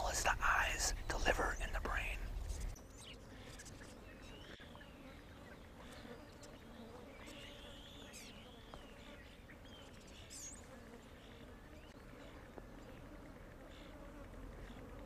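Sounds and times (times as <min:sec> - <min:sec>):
flies buzzing: 0:00.0 - 0:15.0.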